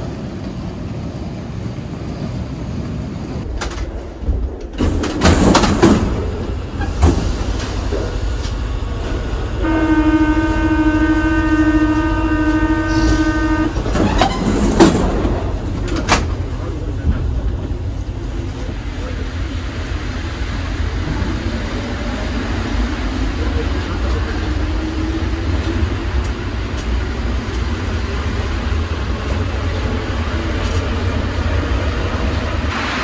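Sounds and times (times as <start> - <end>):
train rumbling: 0.0 - 33.0
loud clunks and rattles: 3.5 - 8.1, 13.8 - 17.3
train horn steady note: 9.6 - 13.8.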